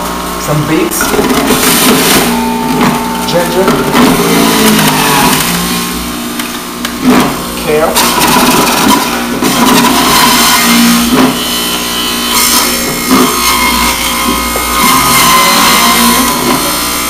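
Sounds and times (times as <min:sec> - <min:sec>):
juicer motor whirring: 0:00.0 - 0:17.0.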